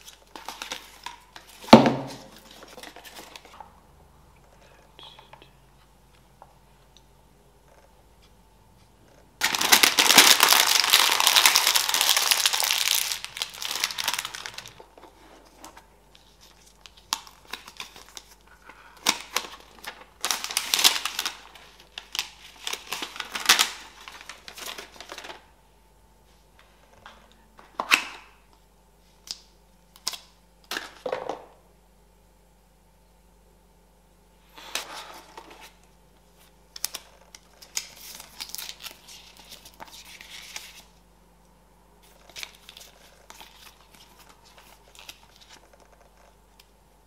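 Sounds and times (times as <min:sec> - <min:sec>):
packaging wrap crinkling: 0:00.0 - 0:03.6, 0:09.4 - 0:25.4, 0:36.8 - 0:41.0, 0:42.0 - 0:46.3.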